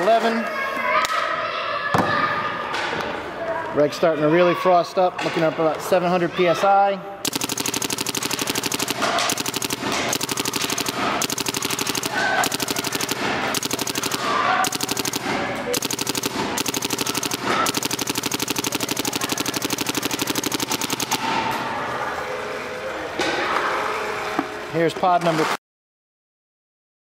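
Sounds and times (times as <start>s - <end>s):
paintball gun rapid fire: 7.2s - 21.5s.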